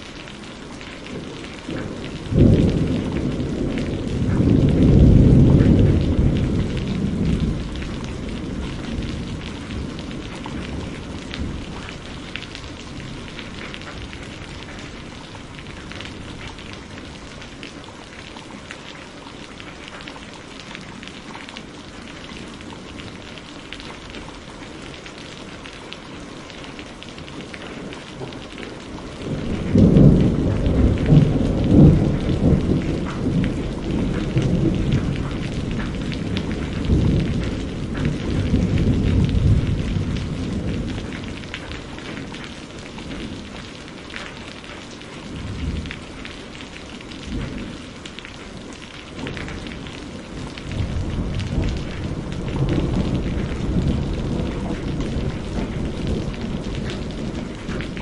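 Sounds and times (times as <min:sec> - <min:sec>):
steady rain: 0:00.0 - 0:58.0
thunder rolling: 0:01.1 - 0:14.8, 0:29.2 - 0:42.3, 0:49.2 - 0:58.0.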